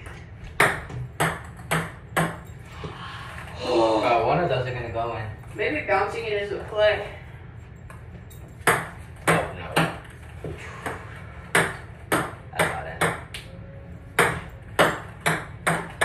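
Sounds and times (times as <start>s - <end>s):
ping pong balls bouncing: 0.0s - 3.4s, 7.8s - 13.5s, 14.1s - 16.0s.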